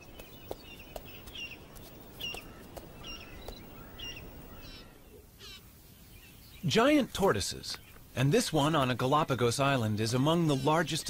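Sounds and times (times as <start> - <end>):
bird chirps: 0.0 - 6.7
faint outdoor ambience: 0.0 - 11.0.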